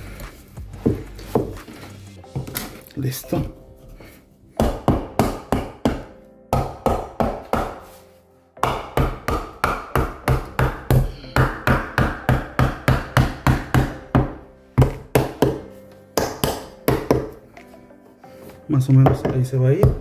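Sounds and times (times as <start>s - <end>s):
hammer striking wooden block: 4.6s - 7.8s, 8.6s - 17.4s, 19.0s - 20.0s.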